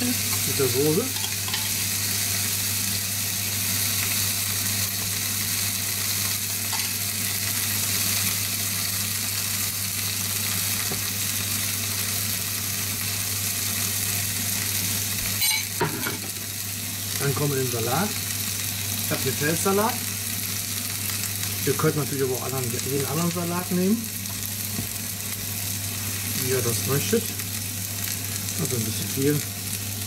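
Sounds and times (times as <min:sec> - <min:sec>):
steak and onions sizzling: 0:00.0 - 0:30.0.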